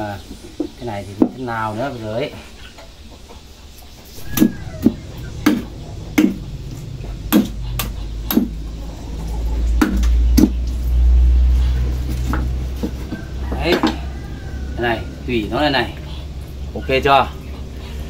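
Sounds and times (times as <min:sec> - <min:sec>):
low rumble: 0:04.1 - 0:12.8.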